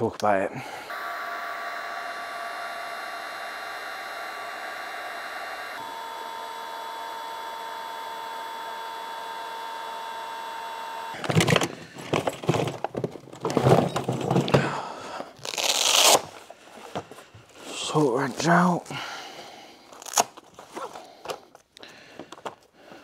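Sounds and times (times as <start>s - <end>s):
heat gun fan whining: 0.0s - 17.1s
tools clattering in plastic case: 11.2s - 14.8s.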